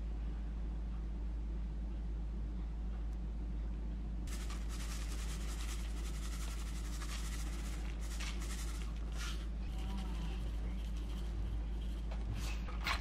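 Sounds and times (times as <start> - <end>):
low hum: 0.0 - 13.0
sugar granules pouring: 4.3 - 9.5.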